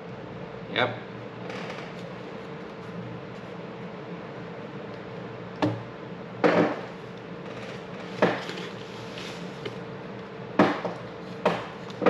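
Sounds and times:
faint steady hum: 0.0s - 12.0s
sharp knocks with clatter: 6.4s - 6.9s, 8.2s - 8.5s, 10.6s - 11.8s.

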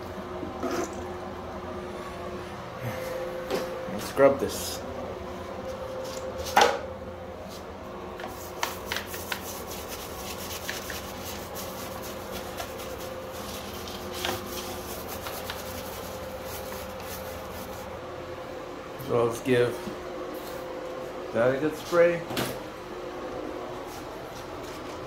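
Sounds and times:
steady low hum: 0.0s - 25.0s
toilet brush scrubbing: 8.3s - 18.0s.

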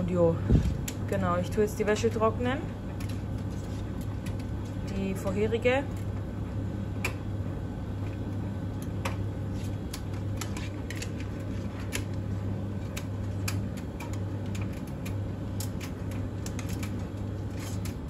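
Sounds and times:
tumble dryer motor hum: 0.0s - 18.0s.

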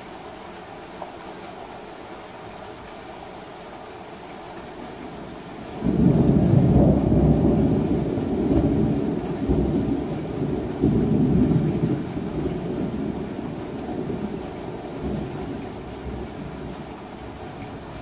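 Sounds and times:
steady rain: 0.0s - 18.0s
thunder rumbling: 5.7s - 17.0s.

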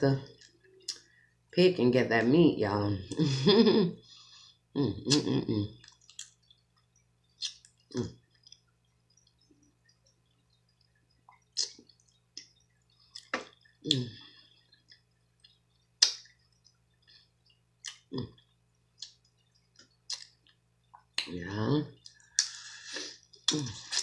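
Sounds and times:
wet mouth clicks and smacks: 5.1s - 14.1s, 14.8s - 21.3s, 22.0s - 22.6s.

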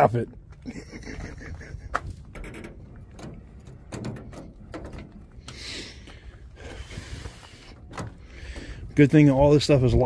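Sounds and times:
wind rumble on microphone: 0.8s - 5.5s
metal doors and latches clicking: 2.2s - 5.6s.

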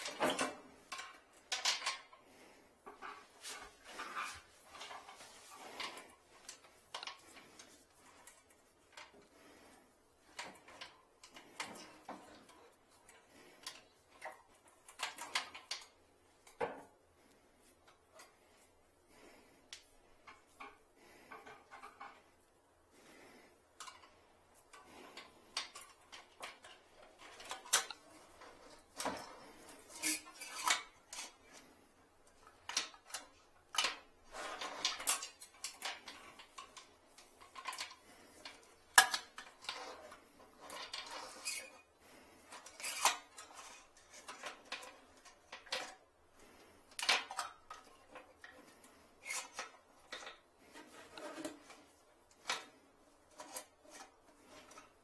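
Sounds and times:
wire hanger scraping porcelain: 24.7s - 31.7s, 32.6s - 55.0s.

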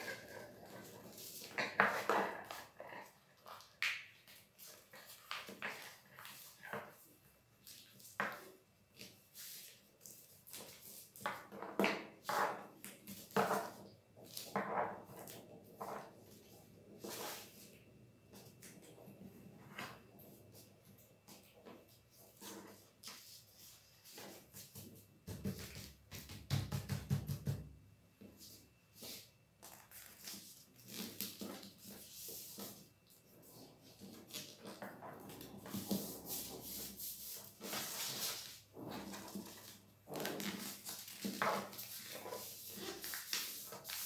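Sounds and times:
paper rustling and crinkling: 35.6s - 44.0s.

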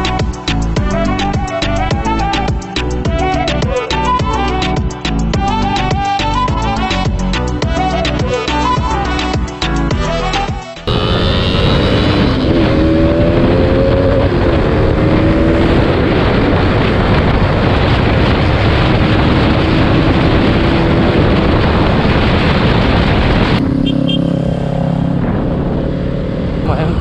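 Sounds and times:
motorcycle engine running: 10.9s - 27.0s
wind rush on microphone: 11.0s - 23.9s, 24.5s - 27.0s.

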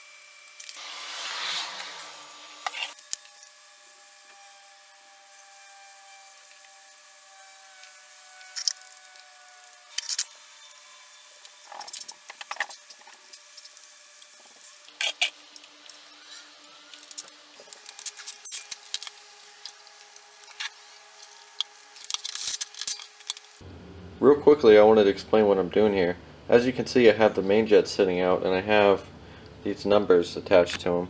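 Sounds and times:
faint steady hum: 15.4s - 31.0s.

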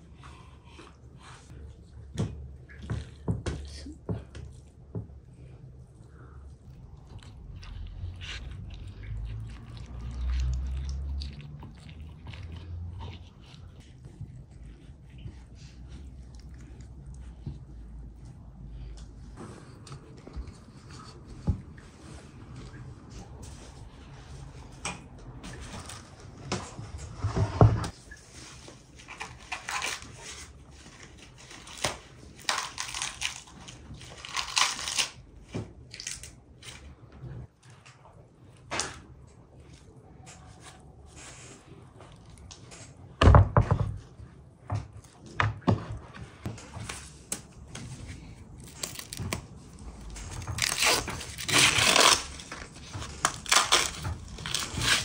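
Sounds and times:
corn husks tearing and rustling: 29.0s - 35.2s, 48.6s - 55.0s.

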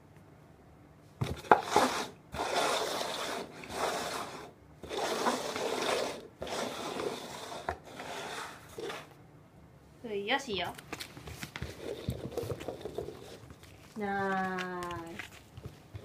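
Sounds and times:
paper cups scraping on floor mat: 1.2s - 9.2s, 11.0s - 16.0s.

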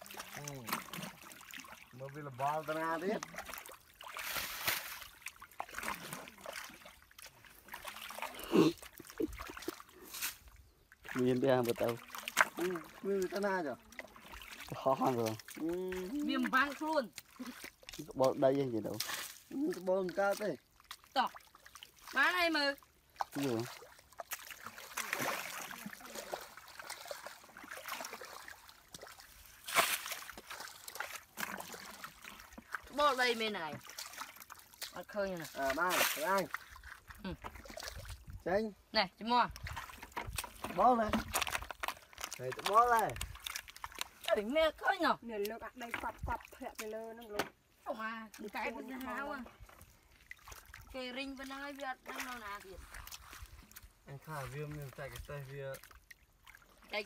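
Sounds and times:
small splashes and knocks: 0.0s - 38.6s, 39.2s - 57.0s
muddy water sloshing: 0.0s - 57.0s
loud splash: 2.4s - 6.9s, 23.3s - 36.6s.

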